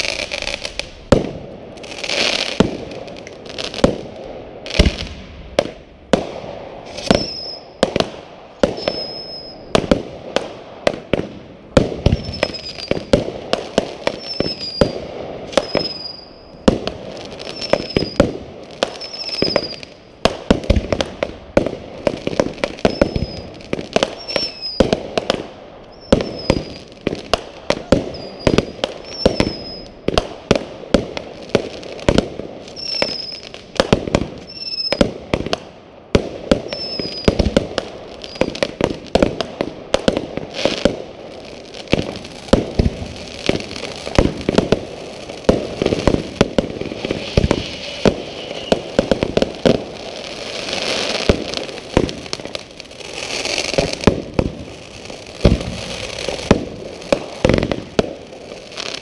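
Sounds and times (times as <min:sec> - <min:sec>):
fireworks bangs: 0:00.0 - 0:59.0
short high firework whistles: 0:06.8 - 0:07.8, 0:08.6 - 0:09.7, 0:12.0 - 0:13.2, 0:14.1 - 0:16.6, 0:17.4 - 0:18.2, 0:18.9 - 0:20.0, 0:22.7 - 0:24.9, 0:25.8 - 0:27.0, 0:27.8 - 0:30.1, 0:32.7 - 0:33.6, 0:34.4 - 0:35.1, 0:36.7 - 0:37.5, 0:38.2 - 0:38.7, 0:45.9 - 0:49.3.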